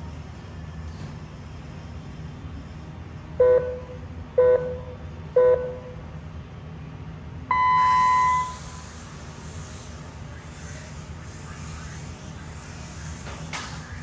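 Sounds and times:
long high start beep: 0:07.5 - 0:08.8
short electronic beeps: 0:07.5 - 0:08.8.

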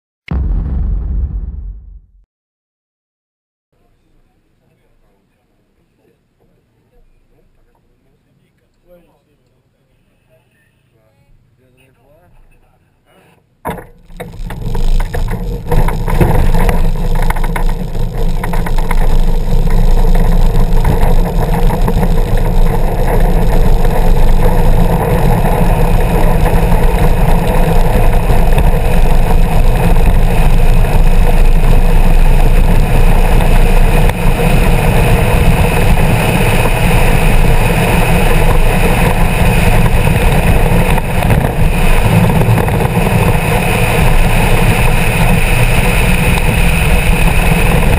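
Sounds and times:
chassis rattle: 0:00.3 - 0:02.2, 0:13.7 - 0:47.9
road and tyre rumble: 0:13.7 - 0:47.9.

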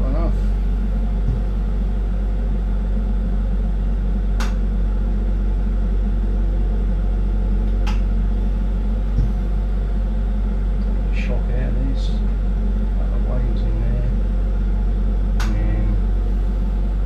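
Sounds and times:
torch burning with low rumble: 0:00.0 - 0:17.0.

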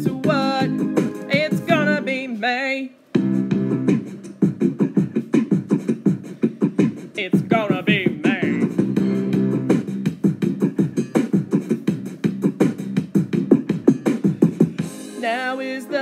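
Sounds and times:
fast clipped beat: 0:00.0 - 0:02.0, 0:03.2 - 0:15.3
steady bass notes: 0:00.0 - 0:02.1, 0:03.2 - 0:15.2
person singing: 0:00.0 - 0:03.0, 0:07.2 - 0:08.8, 0:15.1 - 0:16.0.

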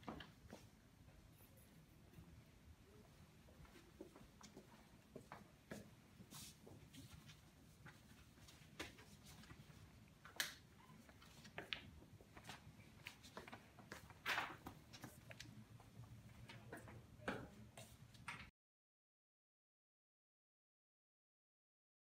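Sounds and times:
paper rustling: 0:12.3 - 0:15.5.

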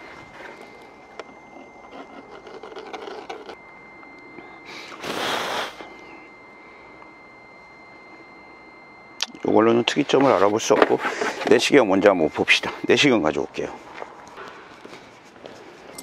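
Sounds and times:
faint steady high tone: 0:00.0 - 0:15.2
person sniffing: 0:04.7 - 0:05.9.

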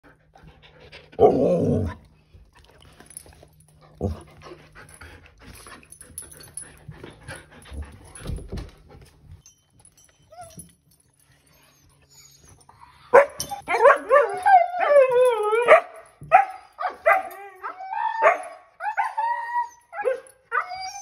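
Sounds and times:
dogs panting: 0:02.4 - 0:09.4
dog whining: 0:11.4 - 0:15.8, 0:16.8 - 0:21.0.

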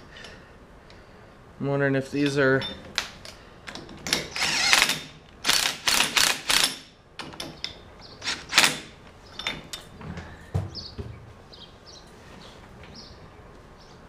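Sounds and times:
cordless driver running bolt: 0:04.1 - 0:06.7.

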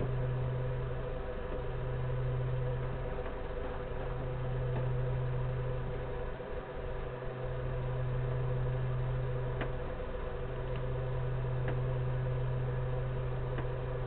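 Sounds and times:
low electrical hum: 0:00.0 - 0:14.0
faint ticks: 0:11.6 - 0:11.9.

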